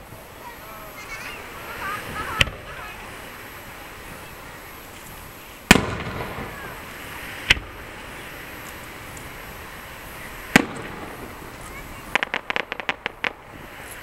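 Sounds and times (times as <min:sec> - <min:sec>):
firework shells bursting: 0:04.9 - 0:07.9, 0:08.5 - 0:14.0.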